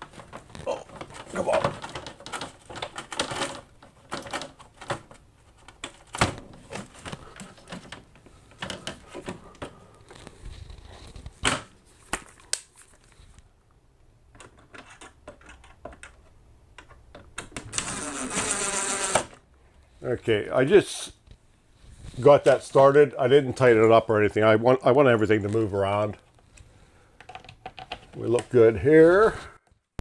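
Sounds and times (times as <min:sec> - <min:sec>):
plastic frame pieces clicking: 0:00.1 - 0:10.2
cordless drill running: 0:17.8 - 0:19.3.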